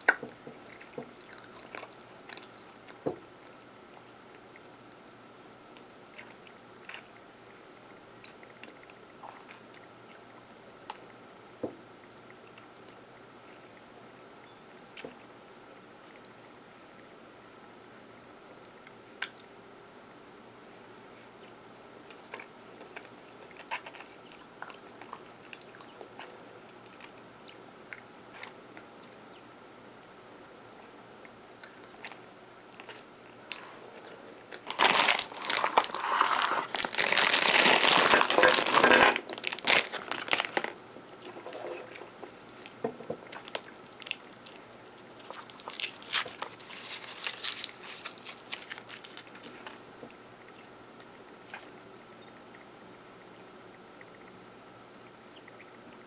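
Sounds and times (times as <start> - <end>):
soft chewing: 0.0 - 5.0, 5.7 - 11.2, 12.0 - 17.5, 21.0 - 38.7, 39.3 - 52.3
plastic bag crinkling: 34.5 - 40.8, 43.4 - 49.8
foil wrapper crinkling: 34.6 - 40.8, 43.4 - 49.8.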